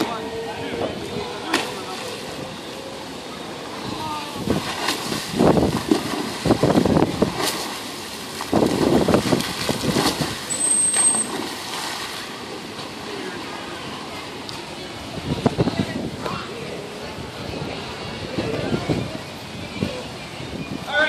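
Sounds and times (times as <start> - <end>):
dolphin splashing through water: 4.1 - 13.5.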